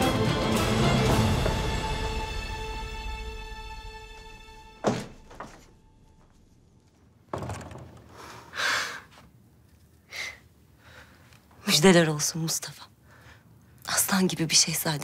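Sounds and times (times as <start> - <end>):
drama soundtrack music: 0.0 - 6.2.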